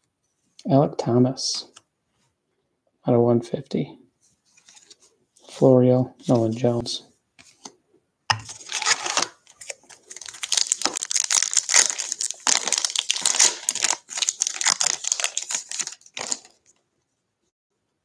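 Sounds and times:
wrapper crinkling and tearing: 8.5s - 16.8s.

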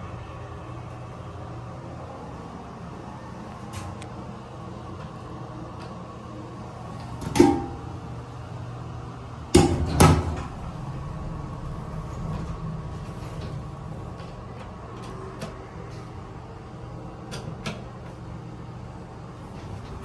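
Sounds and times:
elevator machinery hum: 0.0s - 20.0s.

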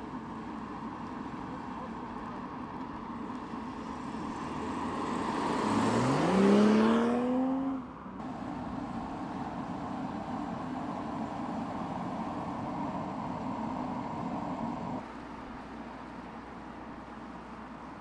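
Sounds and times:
car accelerating past: 4.0s - 10.0s
steady background hum: 8.2s - 18.0s.

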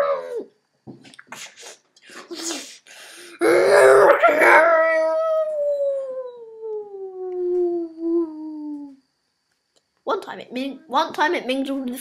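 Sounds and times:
werewolf howl: 3.4s - 9.0s.

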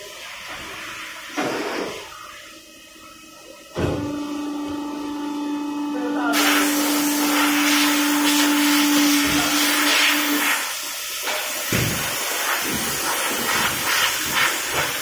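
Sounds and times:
motor hum: 3.1s - 11.0s
loud rushing hiss of air: 6.3s - 15.0s.

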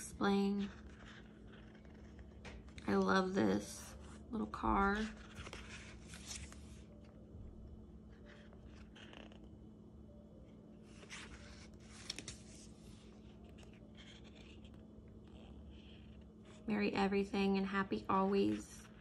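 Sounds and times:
paper rustling: 0.3s - 7.1s, 10.8s - 16.7s.

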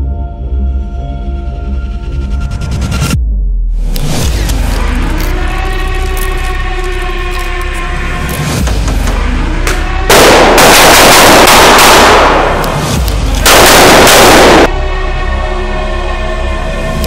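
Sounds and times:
background music: 0.0s - 17.0s
automatic rifle fire: 10.1s - 14.7s.

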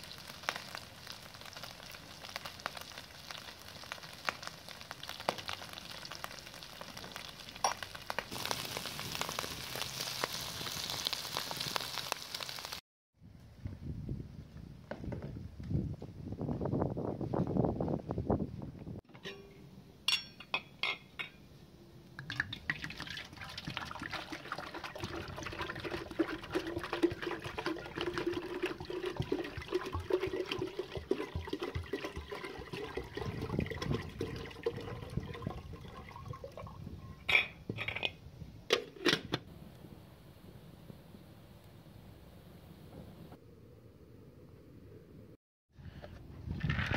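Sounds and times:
water pouring into kettle: 22.3s - 36.9s.

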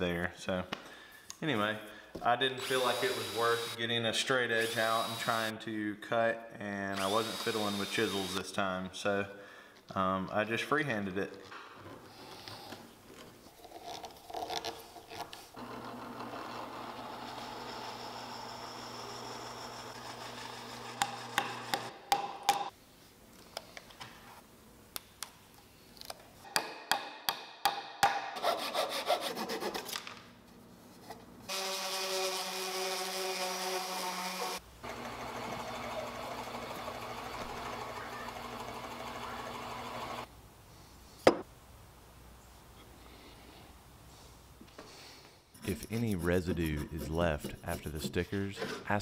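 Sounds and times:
steady rubbing noise: 45.5s - 49.0s.

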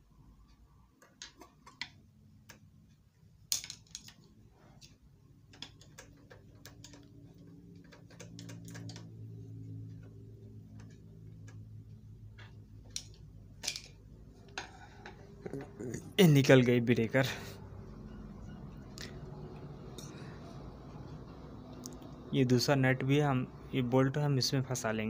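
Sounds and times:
low hum: 6.6s - 16.2s.

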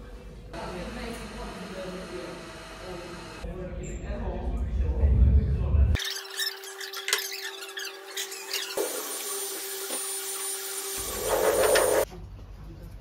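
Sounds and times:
low rumble: 3.4s - 6.0s
potter's wheel humming: 10.7s - 12.0s.

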